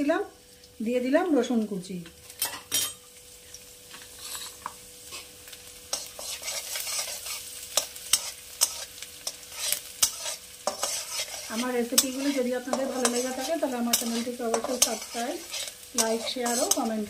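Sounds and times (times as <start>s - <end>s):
garlic sizzling in hot oil: 0.0s - 17.0s
metal spatula scraping pan: 4.2s - 5.3s, 5.9s - 17.0s.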